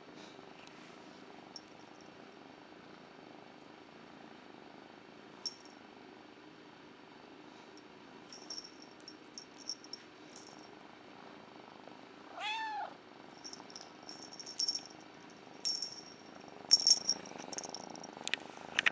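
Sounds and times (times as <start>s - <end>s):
kitten meowing: 12.3s - 13.0s.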